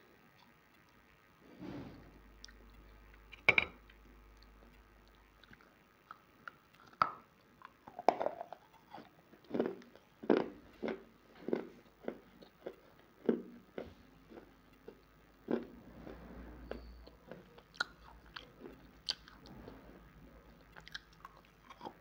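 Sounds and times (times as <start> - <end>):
chewing dry clay crunches: 20.6 - 22.0.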